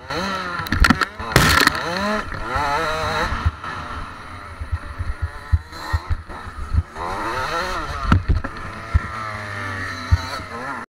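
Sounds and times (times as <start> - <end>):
dirt bike engine revving: 0.0 - 10.9
bike thumping on dirt: 0.5 - 3.9.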